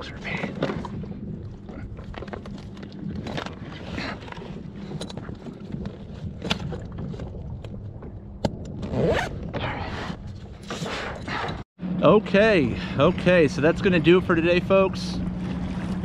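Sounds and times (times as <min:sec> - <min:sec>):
zipper being pulled: 0:08.8 - 0:11.2.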